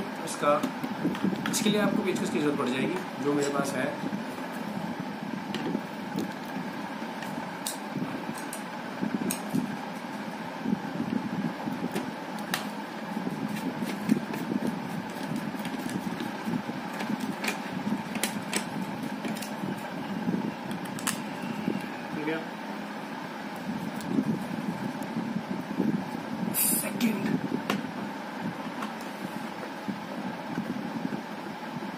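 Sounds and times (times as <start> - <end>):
mechanical hum: 0.0 - 31.9.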